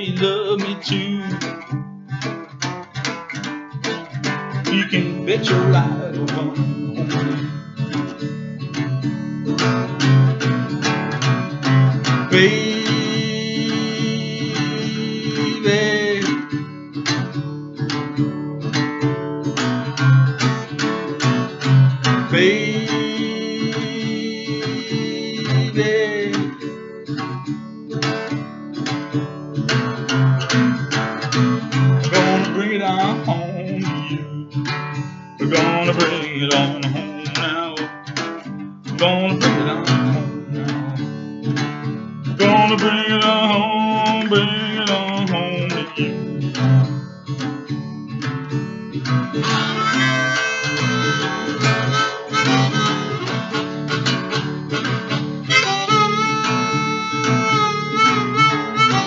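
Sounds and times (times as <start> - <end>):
acoustic guitar strumming blues: 0.0 - 59.0
harmonica playing: 12.0 - 16.3, 22.2 - 26.5, 32.0 - 32.9, 42.4 - 46.3, 49.4 - 59.0.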